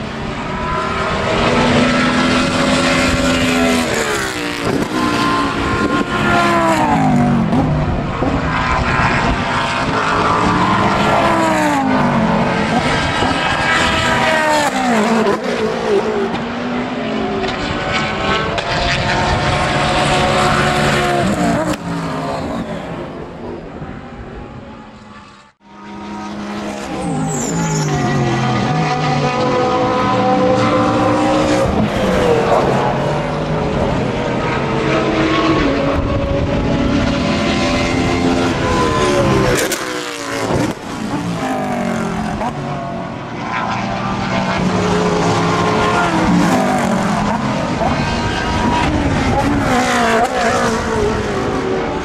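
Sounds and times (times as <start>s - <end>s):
race cars passing at speed: 0.0s - 52.0s.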